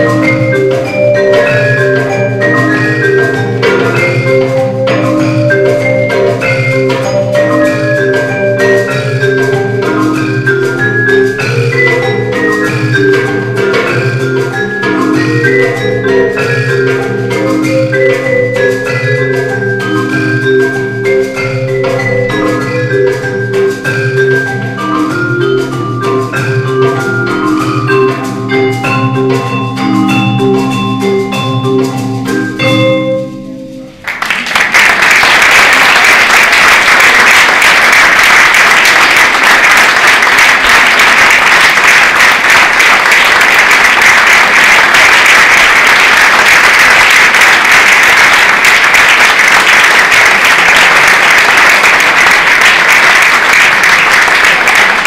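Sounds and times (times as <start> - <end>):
marimba and vibraphone playing: 0.0 - 34.2, 35.6 - 55.0
audience applause: 34.0 - 55.0.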